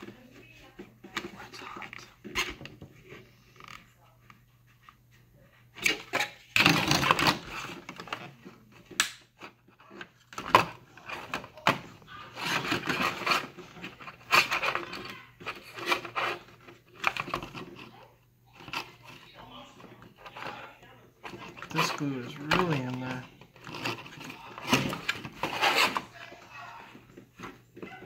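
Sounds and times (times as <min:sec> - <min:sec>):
hand tool scraping plastic: 0:05.8 - 0:18.0, 0:18.6 - 0:28.0.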